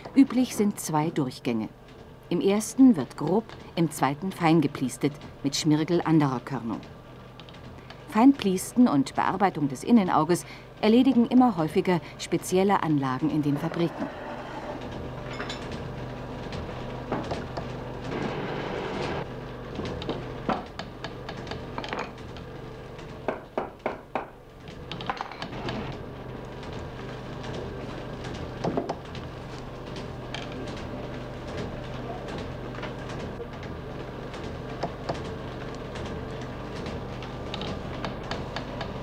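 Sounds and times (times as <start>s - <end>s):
polishing machinery humming: 10.9s - 19.3s.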